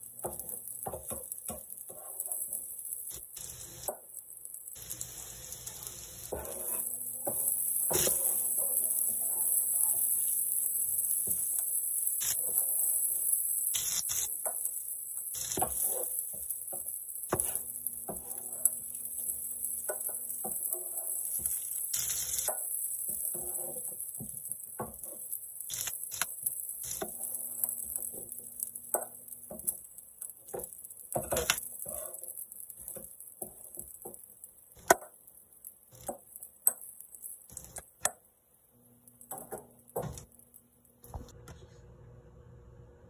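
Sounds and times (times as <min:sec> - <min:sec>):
griddle sizzling: 0:00.0 - 0:41.4
metal spatula scraping griddle: 0:00.3 - 0:02.6, 0:06.3 - 0:10.0, 0:15.4 - 0:19.3, 0:19.9 - 0:29.8, 0:30.5 - 0:33.8.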